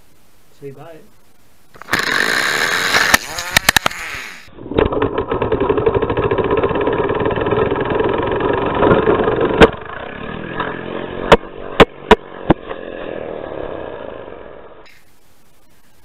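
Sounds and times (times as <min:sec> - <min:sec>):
toy car engine buzzing: 0:01.8 - 0:10.9.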